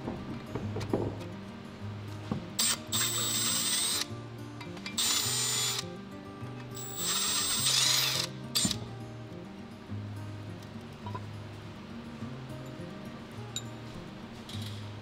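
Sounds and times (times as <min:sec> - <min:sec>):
drill motor whine: 0:02.6 - 0:04.1, 0:05.0 - 0:05.8, 0:06.8 - 0:08.8.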